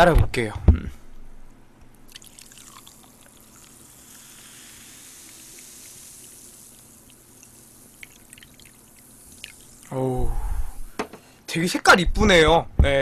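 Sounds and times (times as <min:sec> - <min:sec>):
drink fizzing in a glass: 0:02.1 - 0:10.0
drink poured into a glass: 0:02.1 - 0:10.0.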